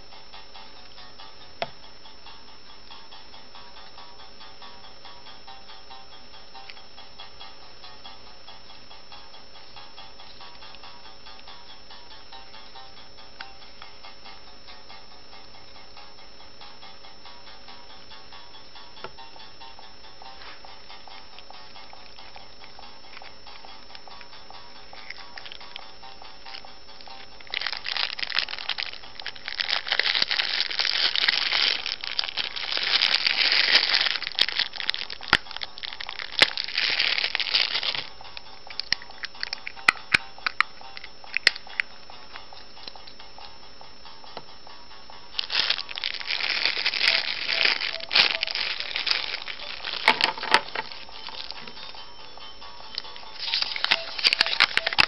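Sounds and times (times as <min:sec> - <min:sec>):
plastic wrapper crinkling: 0:26.6 - 0:40.6, 0:45.4 - 0:52.0, 0:52.9 - 0:55.0.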